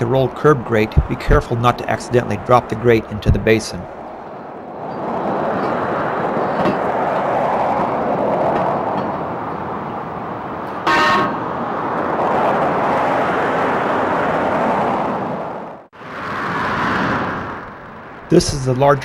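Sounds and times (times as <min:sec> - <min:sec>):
road traffic passing: 0:00.0 - 0:19.0
car horn toot: 0:10.8 - 0:11.4.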